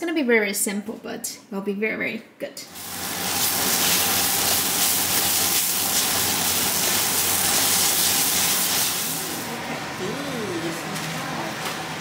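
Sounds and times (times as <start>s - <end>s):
vegetables sizzling in a wok: 2.6s - 12.0s.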